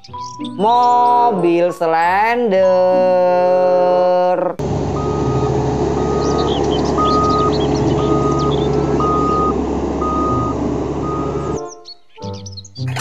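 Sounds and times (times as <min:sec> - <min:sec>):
road roller diesel engine running: 0:04.6 - 0:11.7
reversing alarm beeping: 0:04.9 - 0:11.7.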